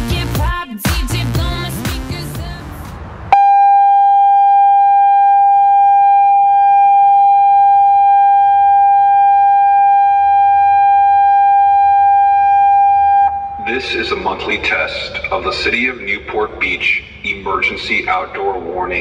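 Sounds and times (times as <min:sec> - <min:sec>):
loud steady alert tone: 0:03.3 - 0:14.4.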